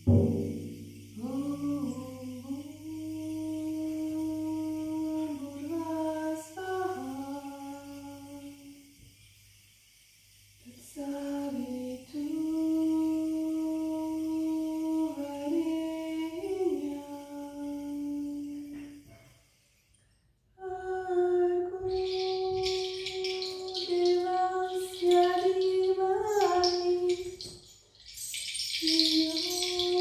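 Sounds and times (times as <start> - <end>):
woman humming: 20.6 - 27.5, 28.6 - 30.0
dry rattling shake: 21.4 - 30.0.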